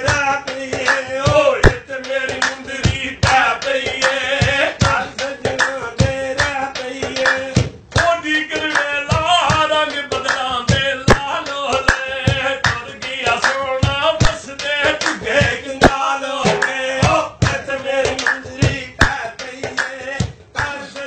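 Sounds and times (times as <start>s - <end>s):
hand drumming on steel pot: 0.0s - 8.0s
man singing folk song: 0.0s - 21.0s.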